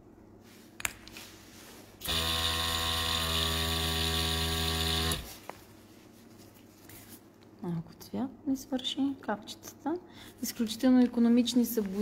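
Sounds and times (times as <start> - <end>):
airbrush compressor humming: 2.0 - 5.4.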